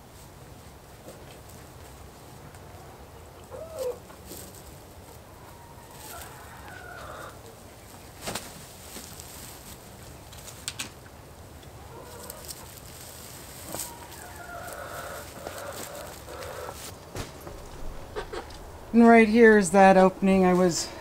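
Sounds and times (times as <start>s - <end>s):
chickens clucking: 2.5s - 8.4s, 11.0s - 19.2s.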